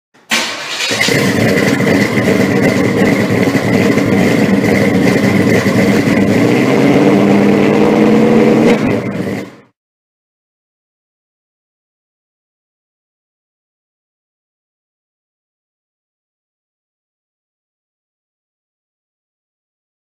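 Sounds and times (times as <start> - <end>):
car engine idling roughly: 0.3 - 6.7, 8.9 - 9.7.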